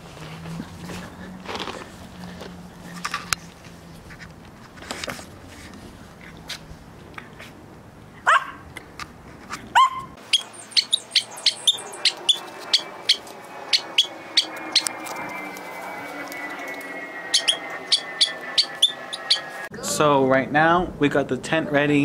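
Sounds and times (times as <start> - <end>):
dogs yipping: 8.2 - 8.6, 9.7 - 19.7.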